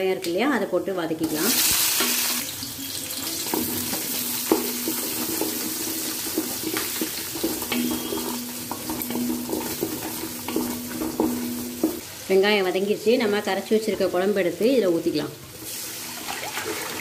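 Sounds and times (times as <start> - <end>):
onions sizzling in oil: 1.2 - 16.5
scrapes and taps against pan: 3.5 - 12.0.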